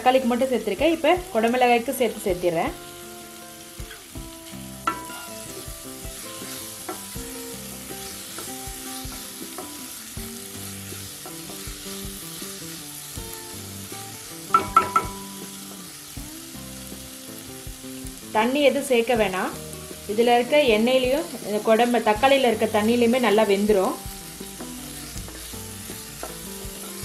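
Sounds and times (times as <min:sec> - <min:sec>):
vegetables sizzling in oil: 0:00.0 - 0:27.0
wooden spatula knocking on pan: 0:04.8 - 0:05.8, 0:14.5 - 0:15.4.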